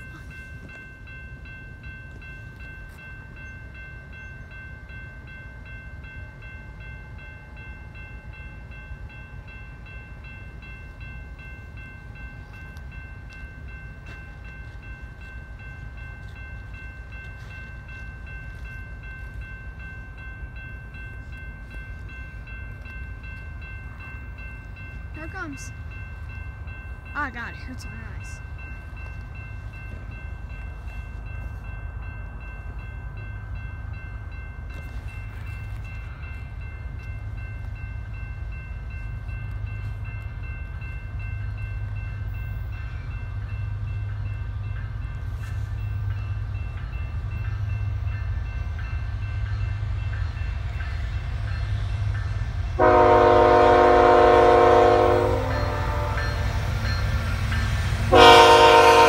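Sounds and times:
diesel locomotive rumbling: 0:00.0 - 0:59.0
locomotive air horn blasts: 0:52.8 - 0:56.4, 0:58.1 - 0:59.0.

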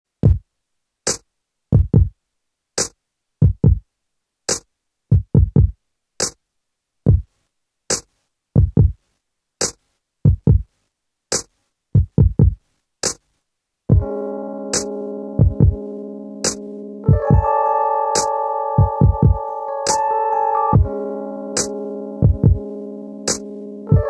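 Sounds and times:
deep electronic kick drums: 0:01.8 - 0:02.1, 0:03.4 - 0:03.8, 0:05.1 - 0:05.8, 0:07.1 - 0:07.3, 0:08.6 - 0:09.0, 0:10.3 - 0:10.6, 0:12.0 - 0:12.6, 0:13.9 - 0:14.2, 0:14.8 - 0:15.9, 0:16.5 - 0:17.5, 0:18.8 - 0:19.4, 0:20.8 - 0:21.0, 0:21.6 - 0:24.0
sharp high drum hit: 0:13.9 - 0:24.0.

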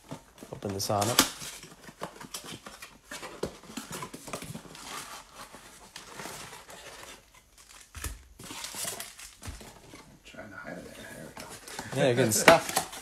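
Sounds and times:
packs crinkling: 0:00.5 - 0:10.0, 0:11.4 - 0:13.0.

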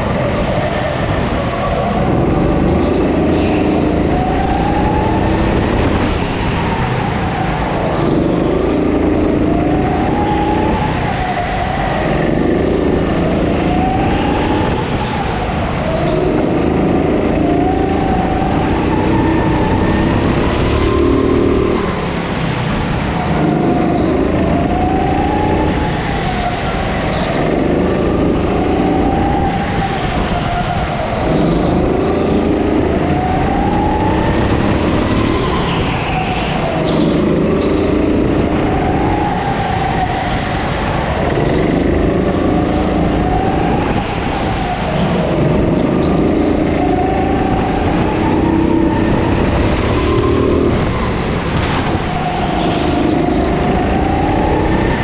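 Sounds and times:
go-kart motor revving: 0:01.9 - 0:07.1, 0:07.7 - 0:15.0, 0:15.9 - 0:29.7, 0:30.9 - 0:39.4, 0:40.9 - 0:44.0, 0:45.0 - 0:55.0.

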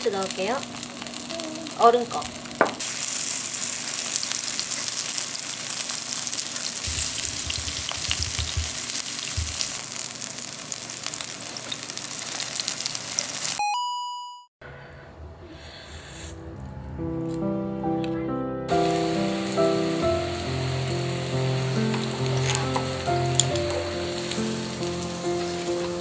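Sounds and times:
batter sizzling in hot oil: 0:00.0 - 0:13.6, 0:18.7 - 0:26.0
faint music: 0:14.8 - 0:26.0.

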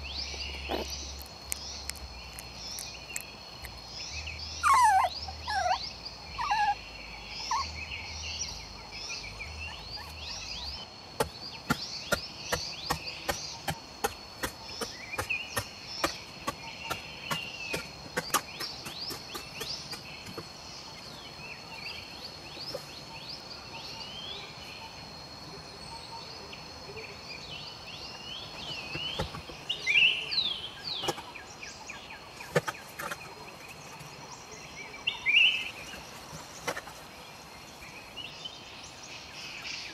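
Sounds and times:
birds chirping: 0:00.0 - 0:39.9
insects droning: 0:00.0 - 0:39.9
puppy whimpering: 0:04.6 - 0:05.8, 0:06.4 - 0:06.8, 0:07.4 - 0:07.7
digging tool striking soil: 0:11.2 - 0:20.6.

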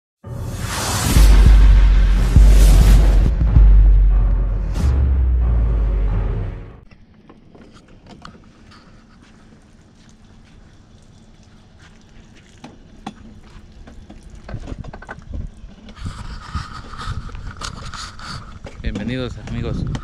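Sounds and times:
low rumble: 0:00.2 - 0:06.9
steady low hum: 0:00.3 - 0:06.9.

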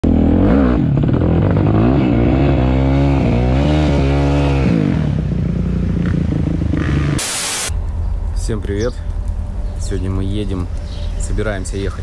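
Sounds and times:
dirt bike engine revving: 0:00.0 - 0:07.7.

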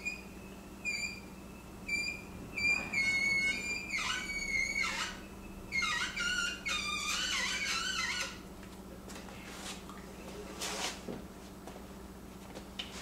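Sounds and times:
cleaning patch squeaking in barrel: 0:01.9 - 0:08.4.

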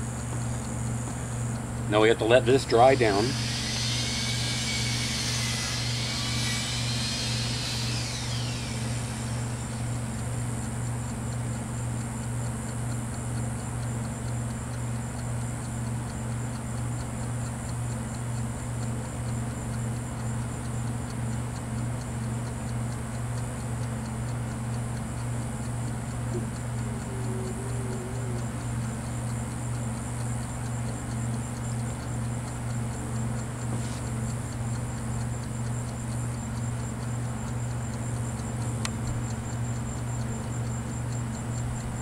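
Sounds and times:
low mechanical hum: 0:00.0 - 0:42.0
whine gliding down: 0:02.7 - 0:10.3, 0:26.3 - 0:30.0.

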